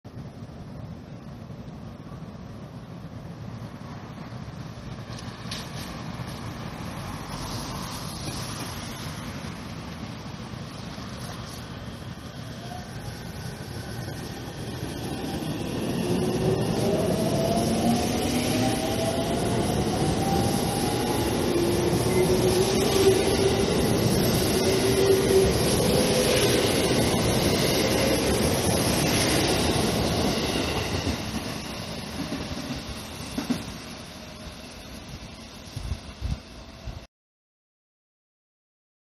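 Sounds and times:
wheel and rail noise: 0.1s - 37.0s
electric train motors whining: 12.6s - 32.4s.

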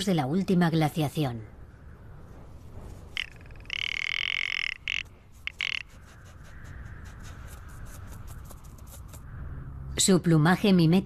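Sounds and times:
ptarmigan calling: 3.1s - 9.5s.

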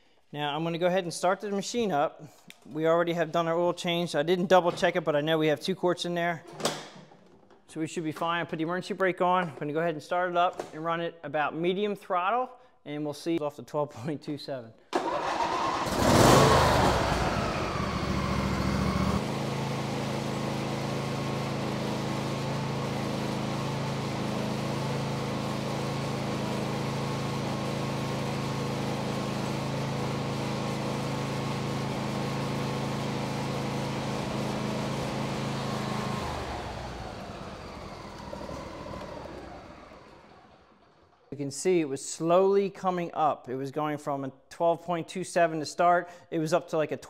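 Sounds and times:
lawn tractor engine running: 15.0s - 41.2s.

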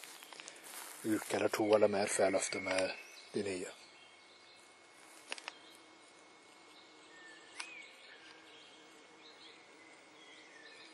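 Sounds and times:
faint steady hiss: 0.0s - 10.9s
faint bird chirps: 0.1s - 4.8s.

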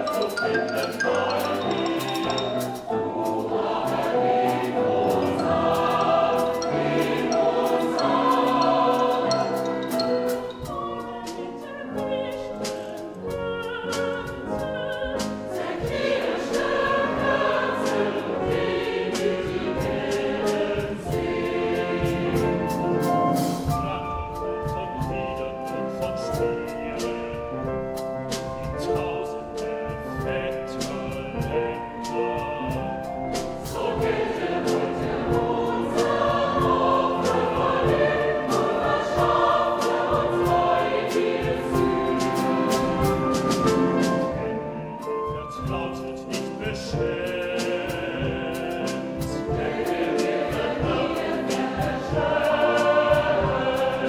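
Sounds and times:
sharp percussion strokes: 0.0s - 11.4s
mixed choir with instruments: 0.0s - 54.0s.

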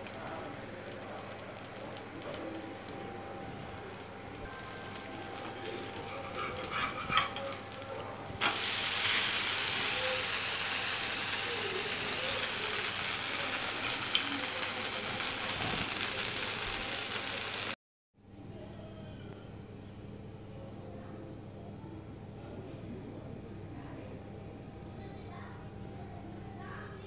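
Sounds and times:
batter sizzling on hot griddle: 0.0s - 17.8s.

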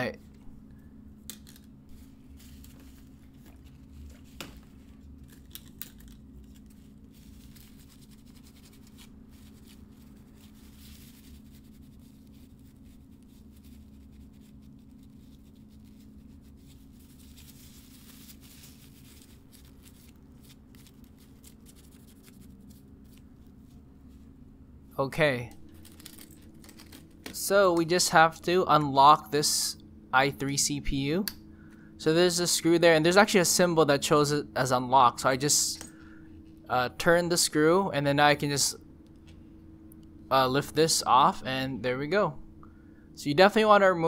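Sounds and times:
low steady hum: 0.0s - 44.0s
paper towel rubbing and wiping: 6.6s - 23.2s.

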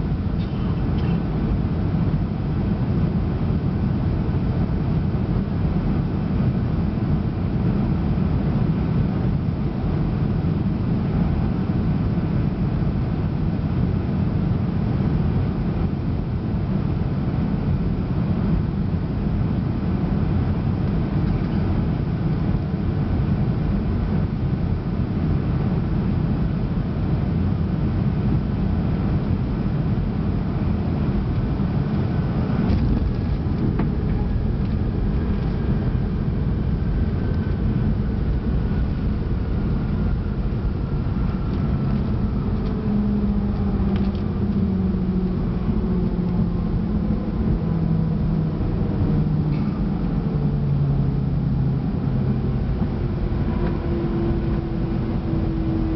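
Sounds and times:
aircraft cabin engine roar: 0.0s - 55.9s.

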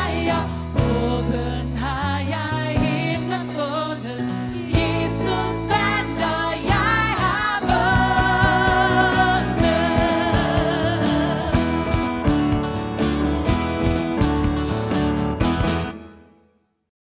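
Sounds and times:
women singing: 0.0s - 11.8s
acoustic guitar: 0.0s - 16.4s
keyboard: 0.0s - 16.5s
steady drum beat: 2.8s - 15.9s.

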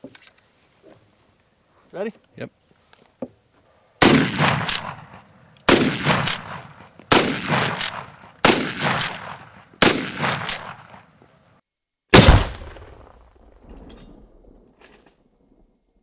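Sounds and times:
rifle shots echoing: 4.0s - 11.1s, 12.2s - 13.3s.

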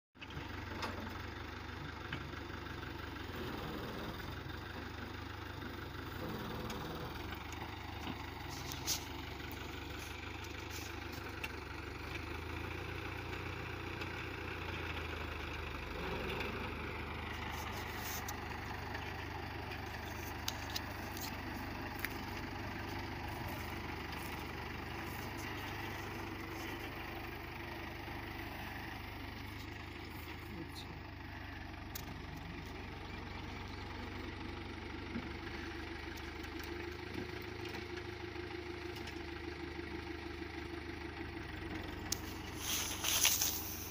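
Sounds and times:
tractor diesel engine running: 0.2s - 43.9s.

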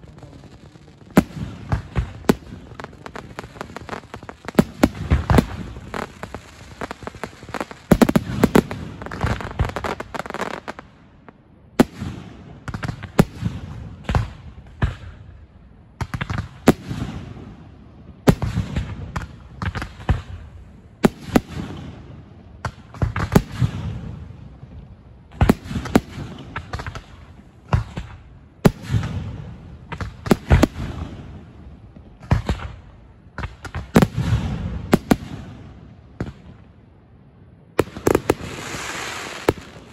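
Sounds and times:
fireworks bangs: 0.0s - 15.2s, 25.3s - 36.7s, 37.8s - 39.9s.

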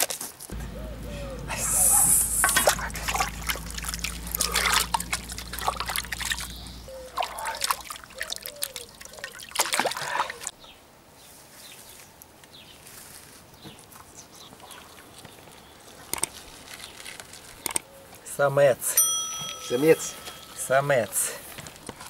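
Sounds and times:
water splashing in a basin: 1.7s - 10.5s.

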